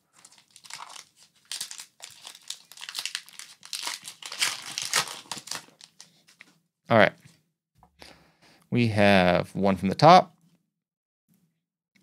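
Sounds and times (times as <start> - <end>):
foil wrapper crinkling and tearing: 0.0 - 6.5.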